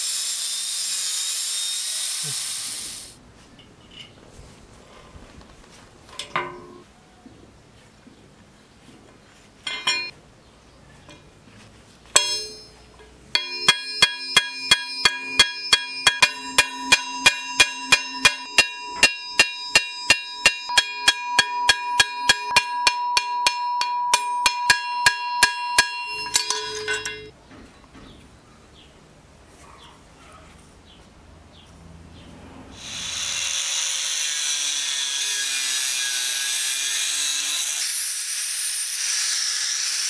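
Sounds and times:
metal taps: 6.1s - 6.8s, 12.1s - 28.1s
hammer striking metal: 9.7s - 10.2s, 12.1s - 27.4s.

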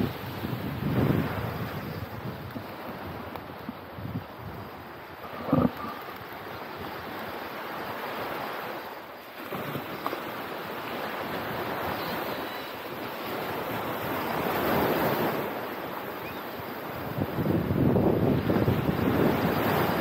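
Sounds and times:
wind buffeting microphone: 0.0s - 8.3s, 16.9s - 20.0s
ocean surf breaking: 0.0s - 20.0s.

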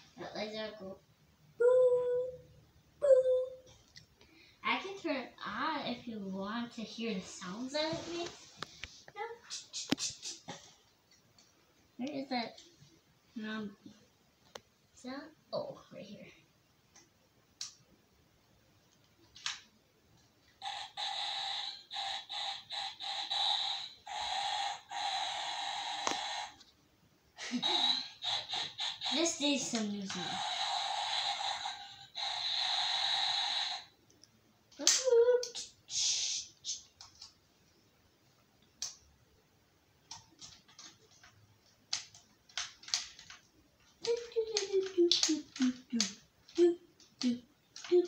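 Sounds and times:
toy electronic sound effects: 20.6s - 26.6s, 27.5s - 33.9s.

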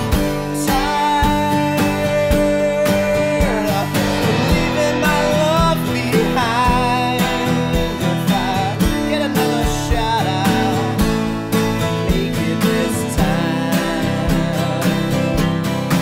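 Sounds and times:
country song with acoustic guitar: 0.0s - 16.0s.

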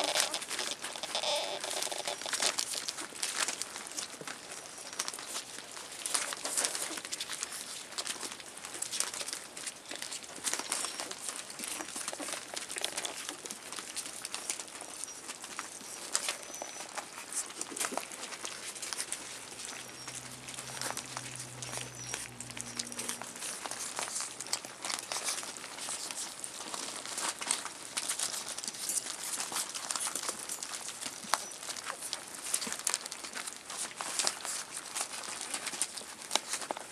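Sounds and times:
newspaper crinkling and rustling: 0.0s - 36.9s.

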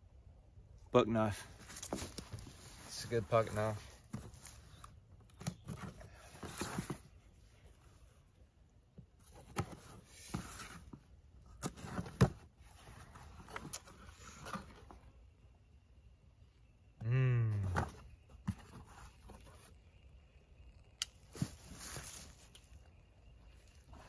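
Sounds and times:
cardboard rustling: 1.5s - 8.0s, 9.2s - 15.1s, 17.6s - 19.8s, 21.2s - 24.0s.

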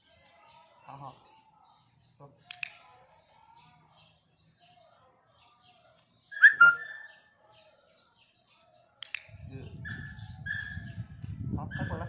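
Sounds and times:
faint bird chirps: 0.0s - 12.0s
click: 2.5s - 2.8s, 9.0s - 9.3s.

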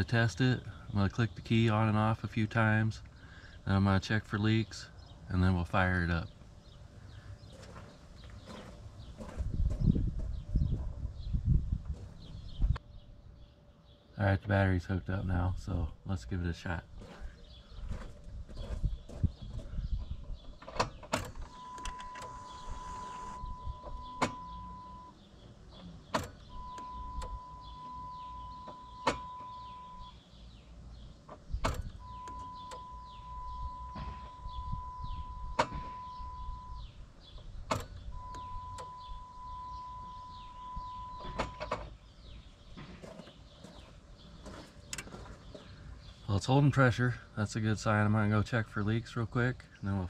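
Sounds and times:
fuel pump whine: 21.2s - 30.2s, 31.6s - 37.0s, 37.6s - 41.8s
fuel pump click: 37.6s - 39.8s.

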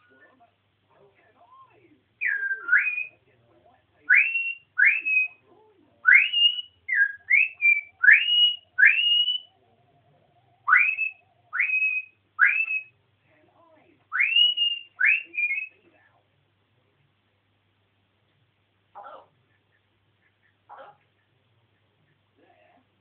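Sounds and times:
parrot whistling rising whistles: 2.2s - 3.1s, 4.1s - 5.4s, 6.1s - 9.5s, 10.6s - 13.0s, 14.1s - 15.8s.

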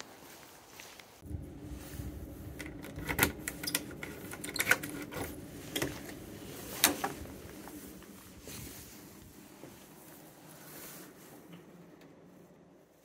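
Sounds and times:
low steady hum: 0.1s - 13.0s
key turning in door lock: 2.6s - 5.9s.

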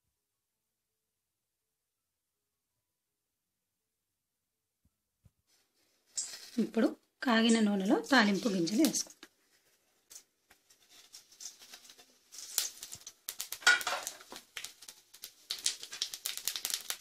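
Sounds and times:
seeds crackling in hot oil: 6.0s - 17.0s.

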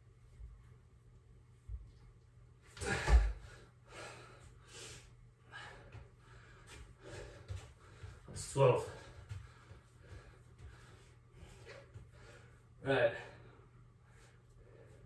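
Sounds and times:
man breathing hard and gasping: 2.8s - 8.3s.

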